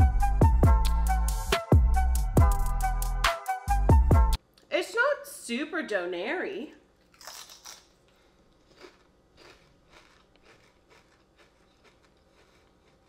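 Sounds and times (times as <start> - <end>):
crunchy chips being chewed: 7.0 - 13.0.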